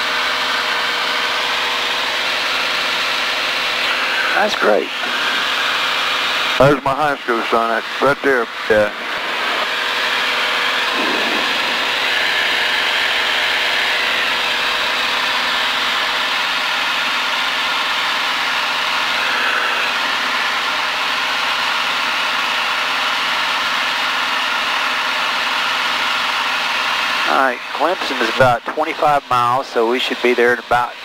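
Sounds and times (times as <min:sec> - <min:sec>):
propeller plane engine droning: 0:00.0 - 0:31.0.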